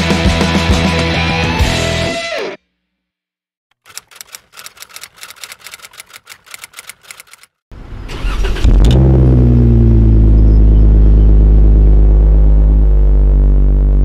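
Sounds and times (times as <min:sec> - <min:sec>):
rapid clicks: 0:03.7 - 0:07.6
engine cranking: 0:03.7 - 0:09.0
car engine running loud: 0:08.5 - 0:14.0.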